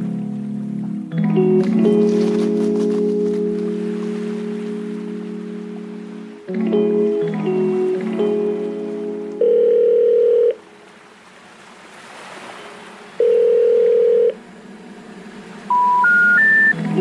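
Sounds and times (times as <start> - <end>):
long flat synth tones: 13.2 - 17.0
held synth tones: 15.6 - 17.0.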